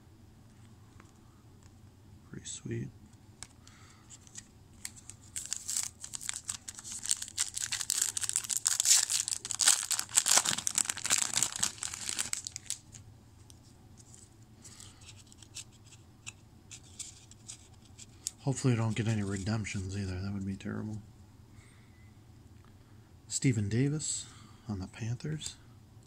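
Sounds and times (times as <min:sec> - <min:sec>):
wrapper tearing and crinkling: 0:04.1 - 0:13.0.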